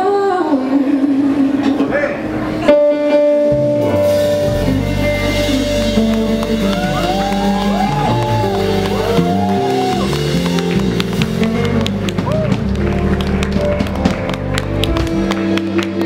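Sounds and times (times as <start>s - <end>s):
woman singing: 0.0s - 1.8s, 4.6s - 8.2s
keyboard: 0.0s - 16.0s
electric guitar: 0.7s - 16.0s
bass line: 2.2s - 16.0s.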